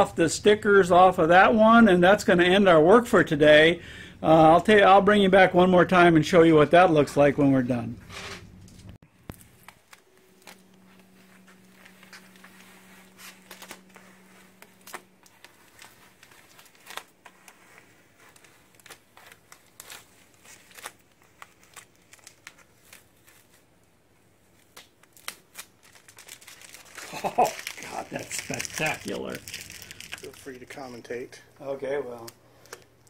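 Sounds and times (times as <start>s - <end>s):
stencil peeling crinkling and ticks: 9.2s - 23.9s, 24.5s - 33.0s.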